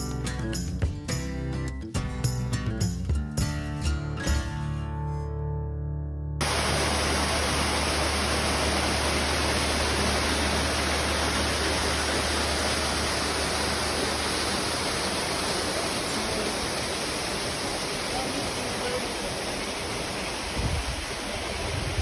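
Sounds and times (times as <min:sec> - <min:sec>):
water rushing: 0:06.4 - 0:22.0.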